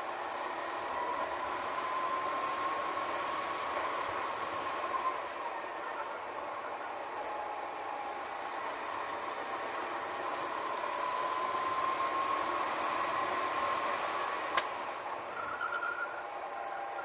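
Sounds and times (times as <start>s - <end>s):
go-kart engine whine: 0.0s - 17.0s
sharp click: 14.5s - 14.7s.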